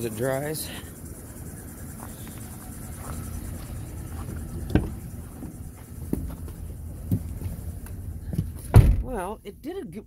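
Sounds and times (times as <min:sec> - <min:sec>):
van engine idling: 0:00.0 - 0:10.0.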